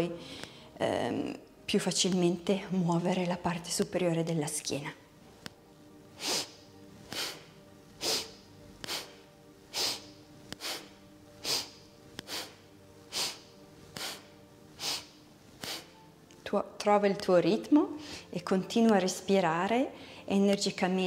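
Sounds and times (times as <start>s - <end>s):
woman breathing forcefully through nose: 0.2s - 0.8s, 6.2s - 16.0s, 18.0s - 18.3s.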